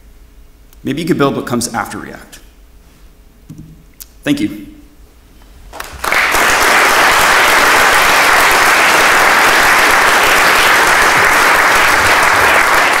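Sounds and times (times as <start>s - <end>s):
audience applauding: 5.7s - 13.0s.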